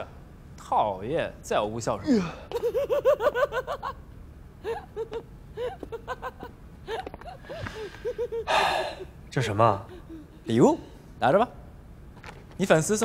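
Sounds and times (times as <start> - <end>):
young man giggling: 2.1 - 4.0, 4.6 - 9.1, 9.8 - 10.8.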